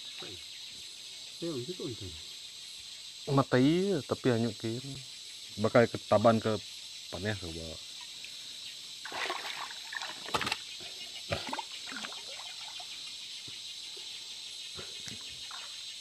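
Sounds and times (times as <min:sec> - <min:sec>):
insects chirring: 0:00.0 - 0:16.0
water splashing: 0:09.0 - 0:10.6, 0:11.3 - 0:12.8.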